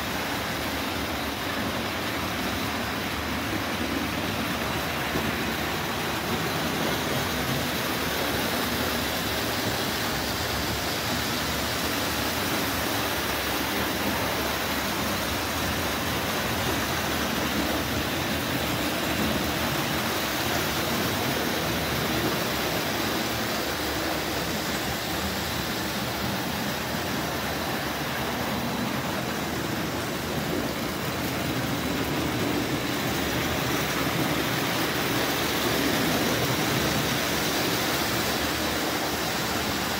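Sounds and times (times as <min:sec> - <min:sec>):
toy train running on track: 0:20.9 - 0:30.6, 0:31.4 - 0:39.9.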